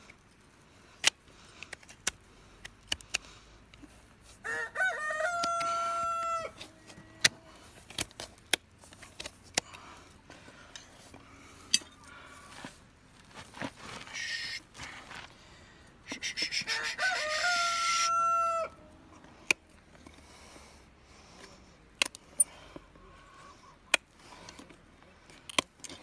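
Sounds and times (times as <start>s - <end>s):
rooster crowing: 4.4s - 7.5s, 16.6s - 18.9s.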